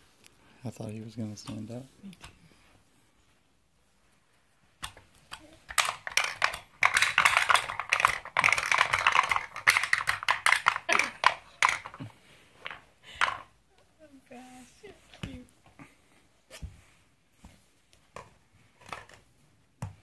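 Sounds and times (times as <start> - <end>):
wooden toy pieces clattering: 4.8 - 13.6.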